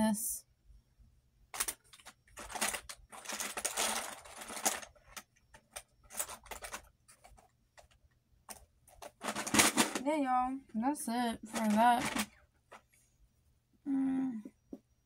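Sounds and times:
makeup cases clicking and clattering: 0:01.6 - 0:10.1.

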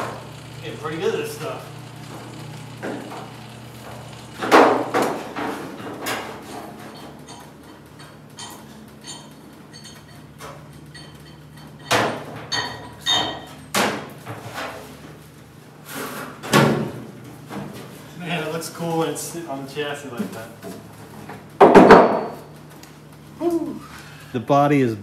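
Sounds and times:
metal clanks and knocks: 0:03.9 - 0:14.8.

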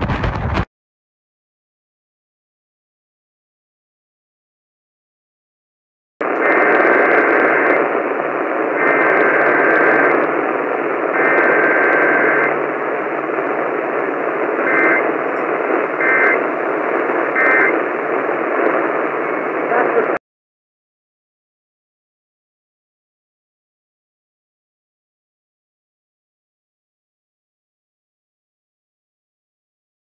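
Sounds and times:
radio static hiss: 0:00.0 - 0:00.7, 0:06.2 - 0:20.2.

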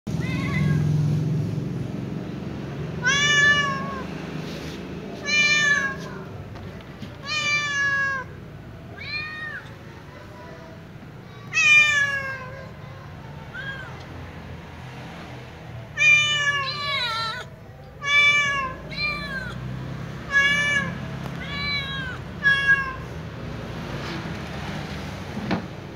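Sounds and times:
kitten meowing: 0:03.0 - 0:04.1, 0:05.2 - 0:06.4, 0:07.2 - 0:09.8, 0:11.4 - 0:12.8, 0:13.5 - 0:14.1, 0:16.0 - 0:23.2.

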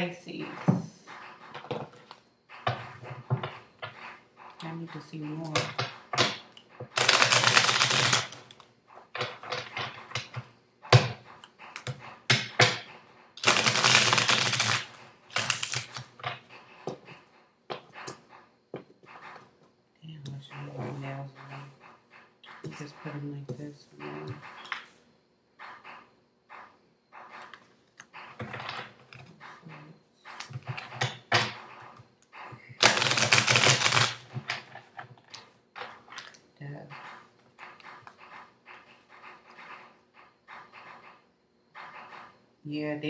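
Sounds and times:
cards being shuffled: 0:07.0 - 0:08.5, 0:13.4 - 0:16.1, 0:32.8 - 0:34.2.

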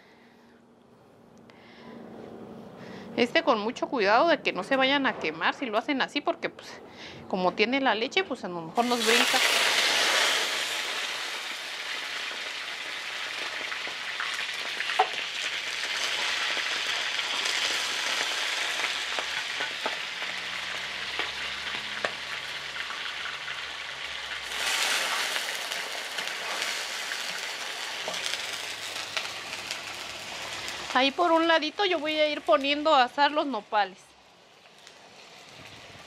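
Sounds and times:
meat sizzling in hot oil: 0:08.8 - 0:33.4.

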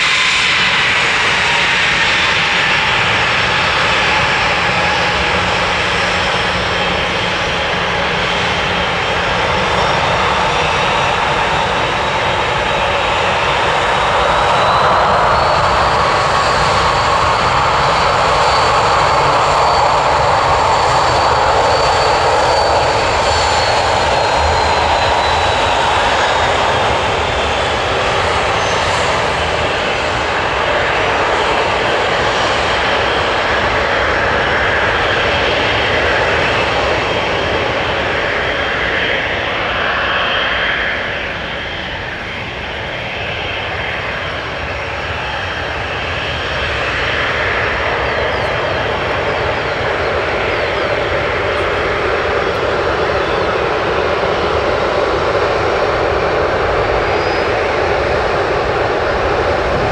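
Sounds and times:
airliner engines whining: 0:00.0 - 0:59.9.

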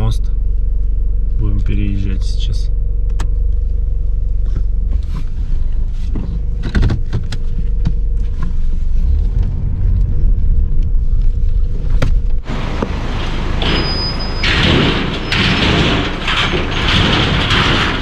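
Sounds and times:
car engine and road rumble: 0:00.0 - 0:18.0
wheels knocking and rattling: 0:06.0 - 0:18.0.

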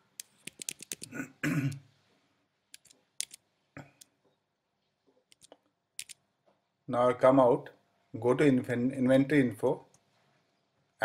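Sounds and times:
keyboard keys tapping: 0:00.2 - 0:01.2
man clearing his throat: 0:01.1 - 0:01.8.

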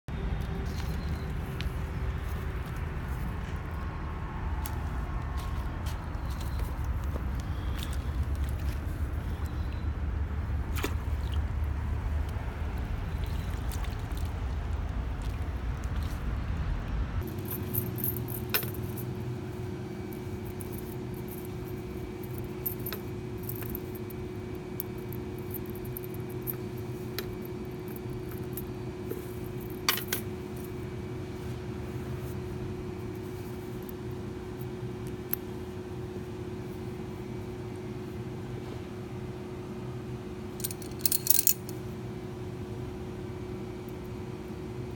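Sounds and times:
low outdoor rumble: 0:00.1 - 0:44.9
steady low hum: 0:00.1 - 0:44.9
safety pins clinking: 0:40.6 - 0:41.8.

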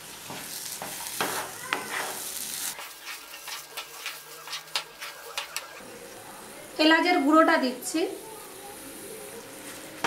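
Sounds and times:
soft sizzle: 0:00.0 - 0:10.0
spatula scraping pan: 0:00.8 - 0:05.8.

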